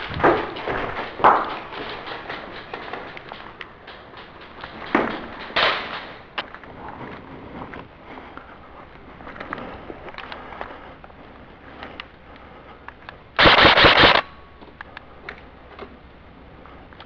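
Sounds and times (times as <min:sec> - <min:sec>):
airsoft rifle full-auto burst: 0:13.4 - 0:14.3.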